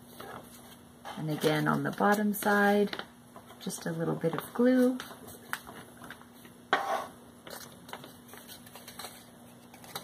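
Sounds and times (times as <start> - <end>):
paper rustling: 0.0 - 3.6, 7.4 - 10.0.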